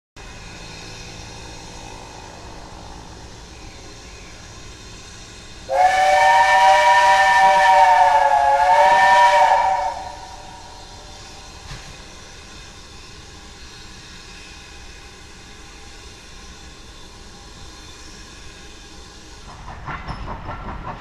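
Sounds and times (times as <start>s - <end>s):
steam locomotive chime whistle: 5.7s - 10.9s.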